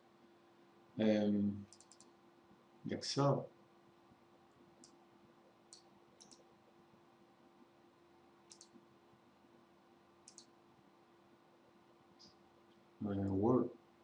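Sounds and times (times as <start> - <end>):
faint steady hum: 0.0 - 14.0
mouse button clicks: 8.5 - 8.7, 10.3 - 10.5.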